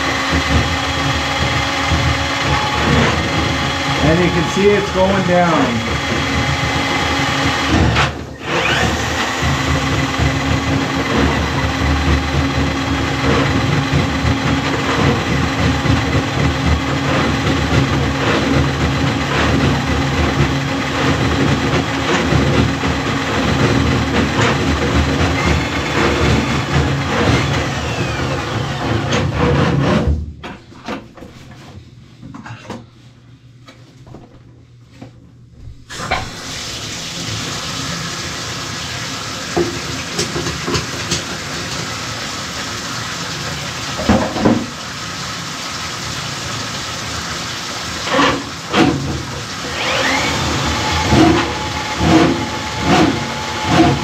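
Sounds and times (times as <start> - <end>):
drain snake motor running: 0.0 - 29.2, 48.0 - 54.0.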